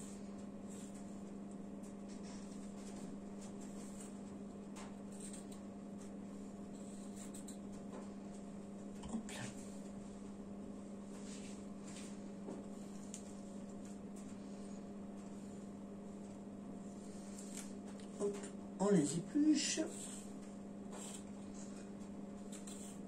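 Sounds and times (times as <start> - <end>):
electrical hum: 0.0 - 23.0
pear peeling scraping: 5.0 - 7.9, 19.8 - 23.0.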